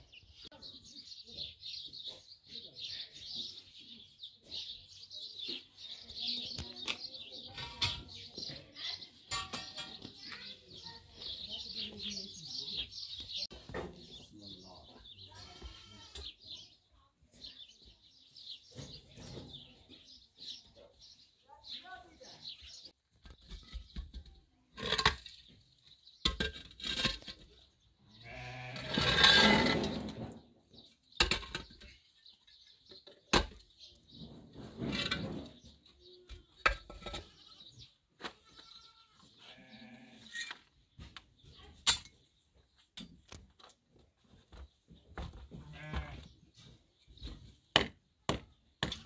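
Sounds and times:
livestock bleating: 15.3 - 16.3, 28.1 - 29.0, 38.4 - 40.4, 45.7 - 46.3.

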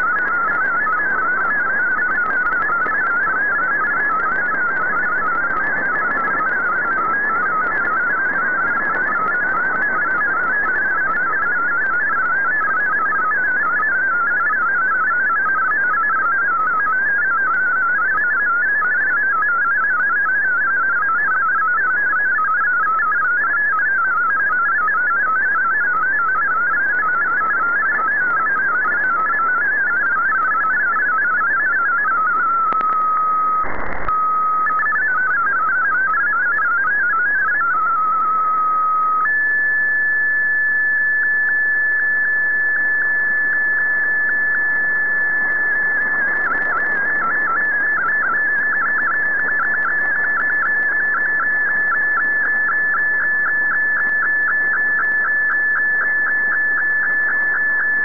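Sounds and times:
radio static hiss: 33.6 - 34.1.

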